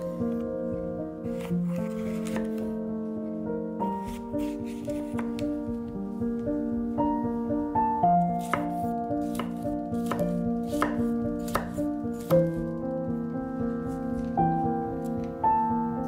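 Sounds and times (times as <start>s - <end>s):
soft piano music: 0.0s - 16.0s
knife chopping on cutting board: 8.4s - 12.6s.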